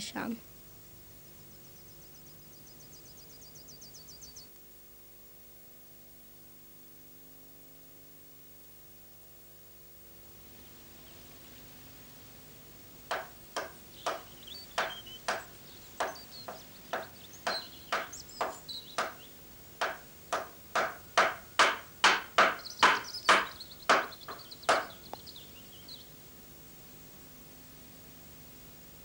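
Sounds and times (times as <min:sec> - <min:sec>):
hammer striking wood: 0:13.1 - 0:25.0.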